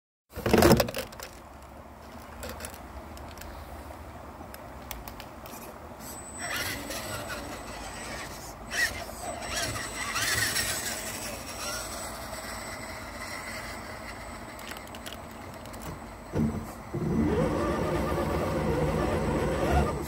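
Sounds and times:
electric motor and gears whining: 5.5s - 20.0s.

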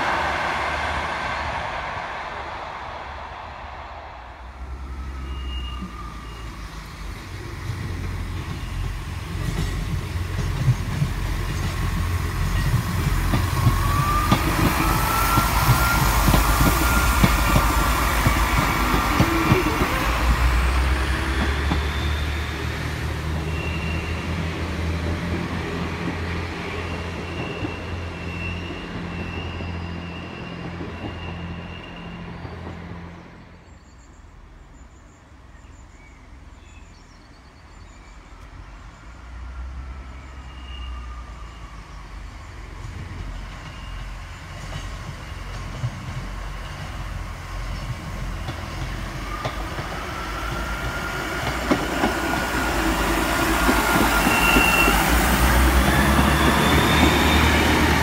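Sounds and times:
high squeal: 0.0s - 7.1s, 12.4s - 24.5s, 26.6s - 32.6s, 38.0s - 42.3s, 49.0s - 58.0s
diesel train engine rumble: 0.0s - 58.0s
train wheels clattering on track: 5.2s - 33.0s, 42.6s - 58.0s.

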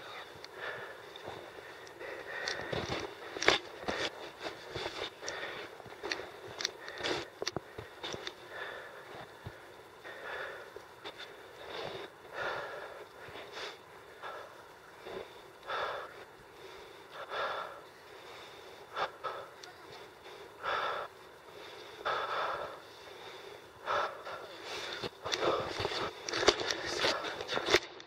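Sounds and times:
crunching footsteps: 0.0s - 9.6s
person breathing heavily: 0.0s - 27.9s.

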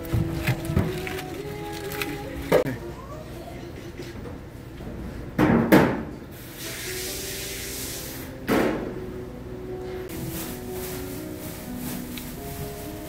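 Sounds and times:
loud kitchen bangs with ringing: 5.4s - 6.2s
steady hiss: 6.3s - 8.4s.

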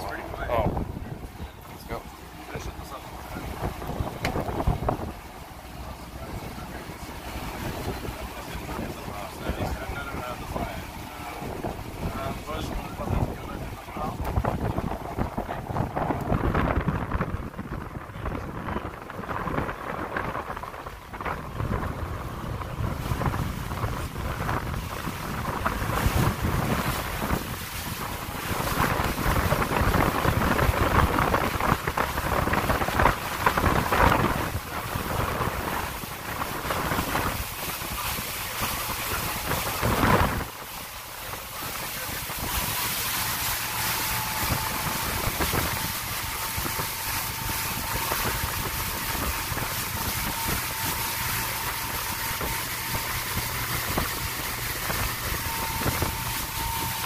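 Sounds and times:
boat engine drone: 0.0s - 57.0s
water rushing: 0.0s - 57.0s
wind buffeting microphone: 0.0s - 57.0s
thin steady whine: 18.2s - 57.0s.

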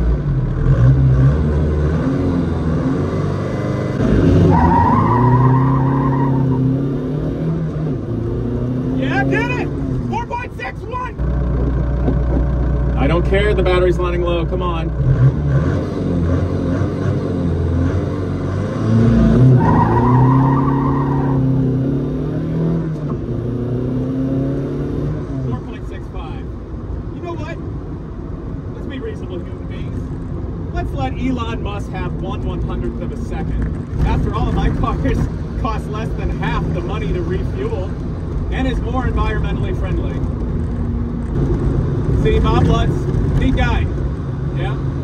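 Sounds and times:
car engine running: 7.6s - 18.0s, 24.5s - 45.0s.

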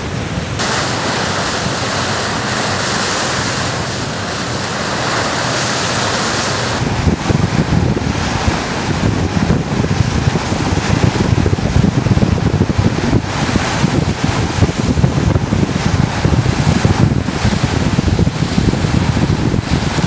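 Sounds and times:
wind and water rushing: 0.0s - 20.0s
wind buffeting microphone: 0.0s - 20.0s.

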